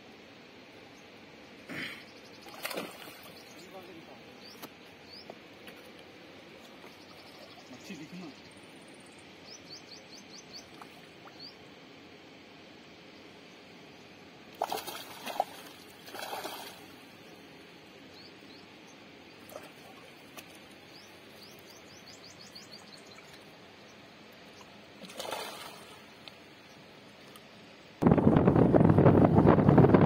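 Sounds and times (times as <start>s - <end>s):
bird chirping: 2.0s - 5.3s, 6.7s - 11.6s, 18.1s - 24.7s
fish splashing in shallow water: 2.4s - 3.6s, 14.5s - 17.2s, 24.5s - 26.3s.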